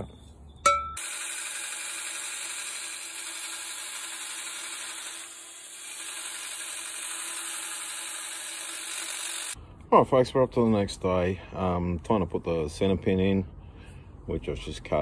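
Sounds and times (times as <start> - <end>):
belt grinder grinding steel: 1.0 - 9.6.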